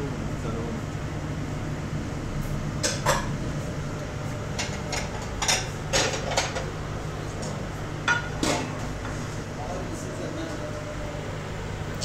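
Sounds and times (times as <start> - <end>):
steady low hum: 0.0 - 12.0
kitchenware clinking and clattering: 4.6 - 6.7, 8.0 - 8.8.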